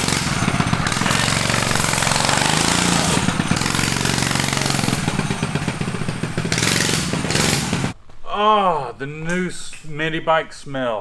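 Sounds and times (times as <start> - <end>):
mini bike engine running: 0.0 - 8.0.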